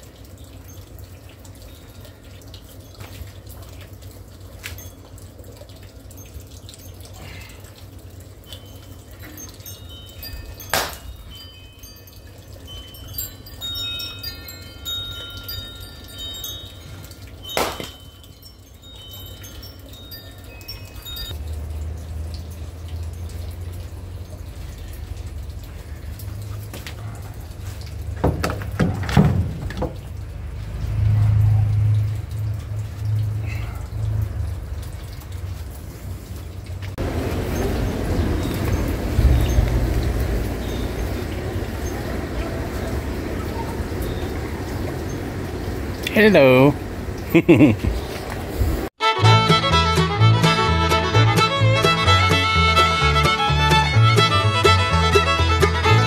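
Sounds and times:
wind chimes ringing: 0.0s - 26.5s, 37.0s - 46.8s
axe striking log: 17.6s - 18.0s.

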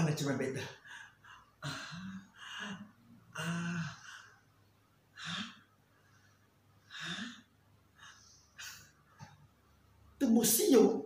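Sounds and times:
man gasping and groaning: 1.6s - 4.3s.

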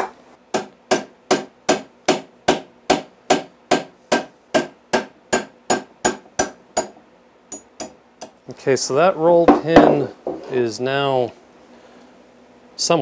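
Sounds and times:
hammer striking metal pin: 0.0s - 8.4s.

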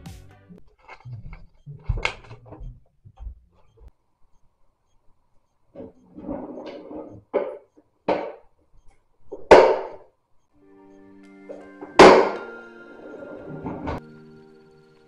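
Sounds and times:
soft instrumental music: 0.0s - 0.6s, 10.6s - 15.0s.

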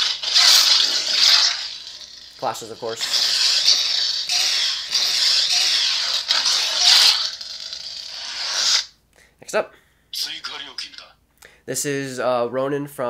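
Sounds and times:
lightsaber crackling hissing hum: 0.0s - 8.9s.

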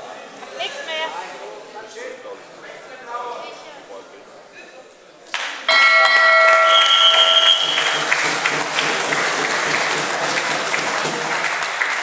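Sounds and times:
crowd applauding: 5.4s - 12.0s
higher shrill steady tone: 5.7s - 8.2s
steady horn tone: 5.7s - 8.2s.

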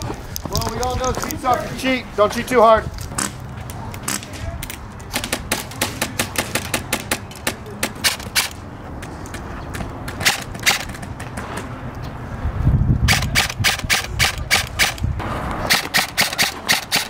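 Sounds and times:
airsoft rifles firing: 10.2s - 11.2s, 15.6s - 17.0s.

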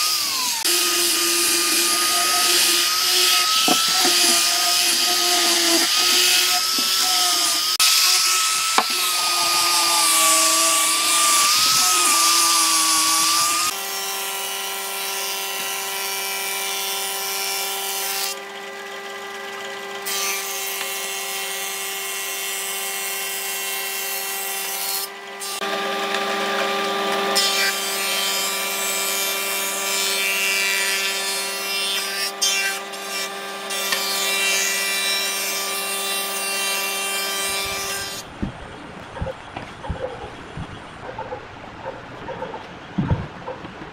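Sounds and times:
planer motor hum: 0.0s - 7.8s, 25.2s - 30.4s
planer cutting hiss: 0.0s - 13.8s.

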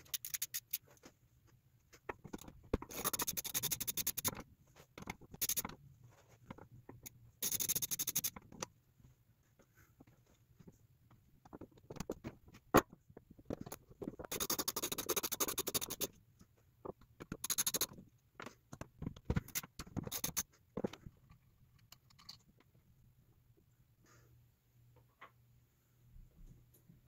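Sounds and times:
ratchet wrench clicking: 0.0s - 0.8s, 7.4s - 8.4s, 14.3s - 16.1s, 17.4s - 17.9s.

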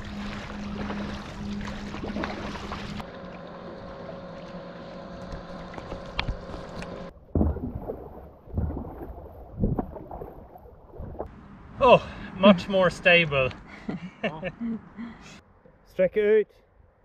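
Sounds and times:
paddle dipping in water: 0.0s - 11.4s.

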